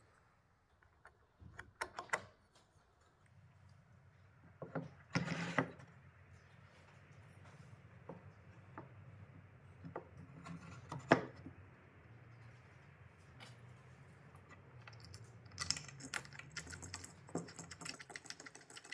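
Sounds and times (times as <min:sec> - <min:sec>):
wooden block scraping on wood: 0:05.2 - 0:05.8.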